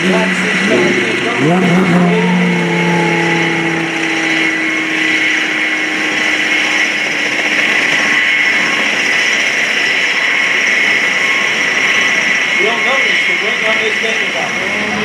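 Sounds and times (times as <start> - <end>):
propeller plane engine running: 0.0 - 15.0.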